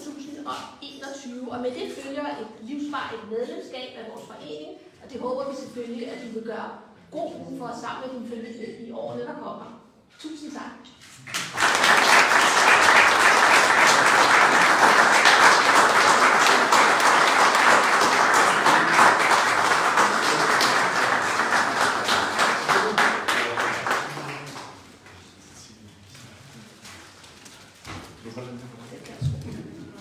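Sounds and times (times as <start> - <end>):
audience applauding: 11.3 - 24.8.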